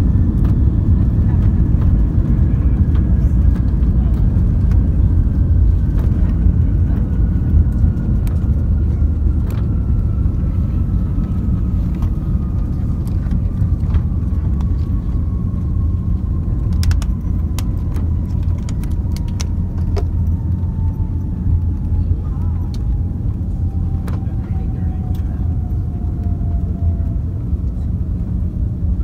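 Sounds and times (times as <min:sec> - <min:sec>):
aircraft cabin rumble: 0:00.0 - 0:29.0
jet engine whine: 0:00.0 - 0:29.0
light clicks and rattles: 0:16.6 - 0:21.0.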